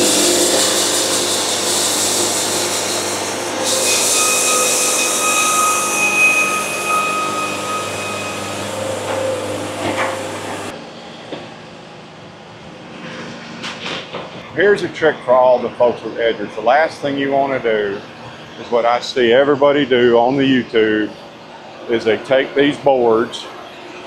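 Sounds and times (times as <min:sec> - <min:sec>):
band saw cutting boards: 0:00.0 - 0:10.8
high ringing note: 0:03.5 - 0:10.8.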